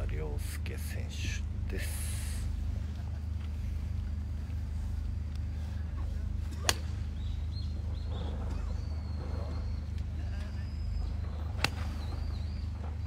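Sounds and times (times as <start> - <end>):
steady low hum: 0.0 - 13.0
golf club striking ball: 6.5 - 7.1.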